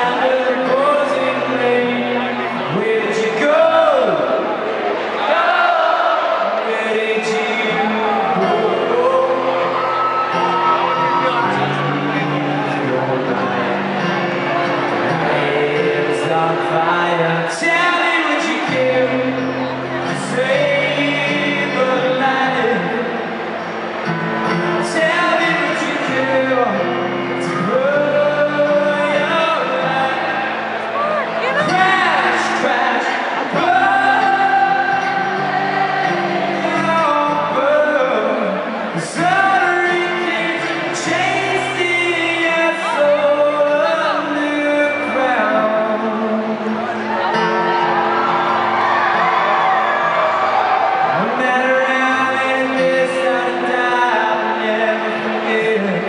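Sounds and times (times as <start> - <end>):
person singing: 0.0 - 4.3, 6.4 - 23.4, 24.4 - 48.0, 51.1 - 56.0
acoustic guitar: 0.0 - 56.0.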